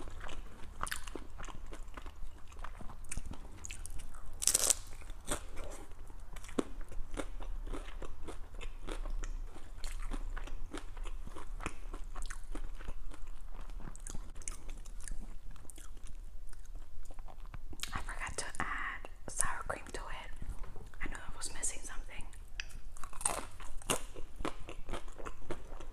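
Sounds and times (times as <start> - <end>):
crunching hard-shell taco: 0.0 - 17.9, 22.6 - 25.9.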